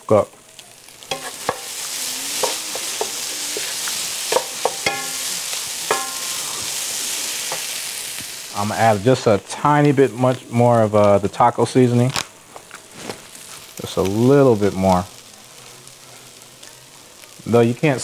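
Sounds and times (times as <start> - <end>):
meat substitute sizzling in skillet: 0.0 - 18.0
wooden spoon stirring and scraping: 1.1 - 5.0
spoon knocking against pan: 4.3 - 5.2, 5.9 - 6.2.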